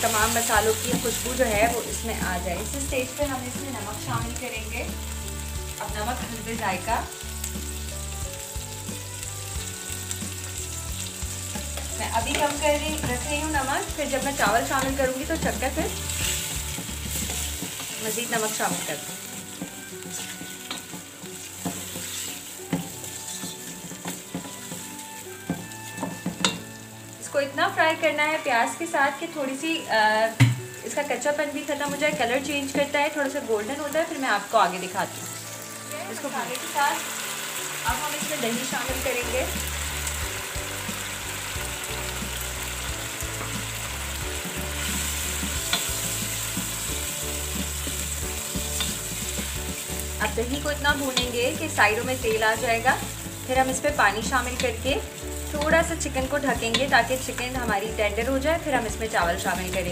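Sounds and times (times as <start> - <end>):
meat sizzling in hot oil: 0.0 - 59.9
spatula scraping a pot: 14.9 - 24.9
spatula knocking on pan: 22.7 - 26.6.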